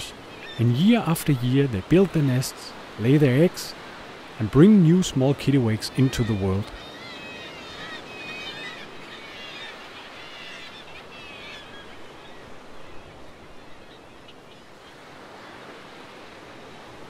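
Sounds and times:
seabirds calling: 0.0 - 17.0
surf washing: 0.0 - 17.0.

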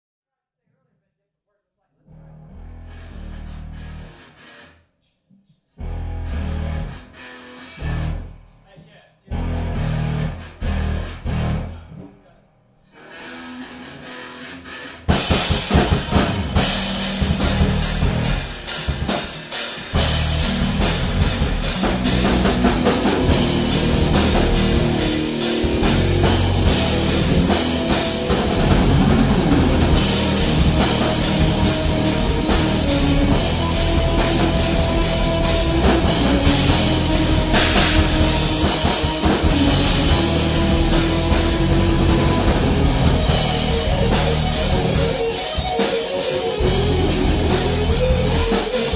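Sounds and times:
electric guitar playing roughly: 2.6 - 4.8, 5.8 - 8.5, 9.3 - 11.8, 13.0 - 48.9
drum kit playing loudly: 15.1 - 48.9.

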